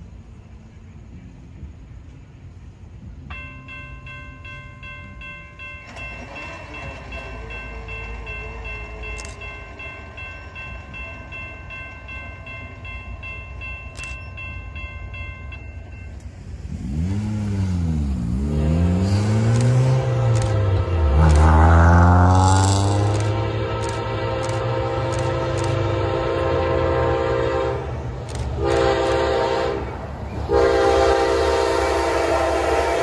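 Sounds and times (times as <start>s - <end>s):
low rumble of passing train: 0.0s - 33.0s
locomotive horn chord: 18.4s - 33.0s.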